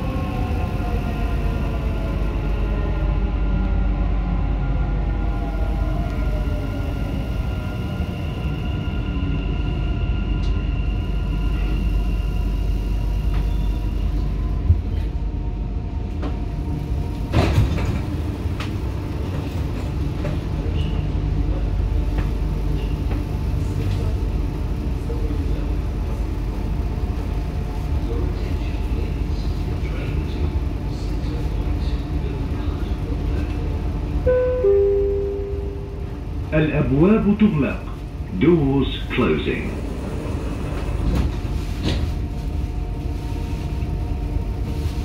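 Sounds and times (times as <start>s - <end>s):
train rumble: 0.0s - 45.0s
train doors clattering open: 17.2s - 21.1s, 39.7s - 42.4s.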